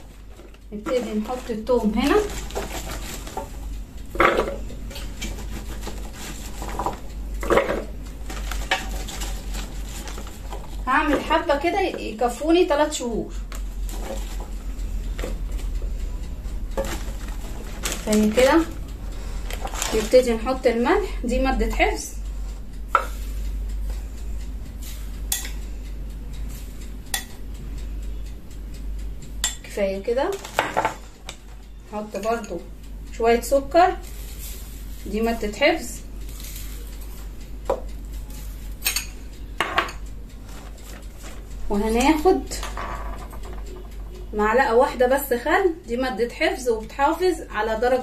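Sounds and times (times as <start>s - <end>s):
garlic cloves clattering in metal pot: 0.0s - 15.8s, 16.8s - 18.8s, 19.4s - 22.0s, 29.4s - 32.7s, 38.8s - 43.7s
steady low hum: 0.0s - 48.0s.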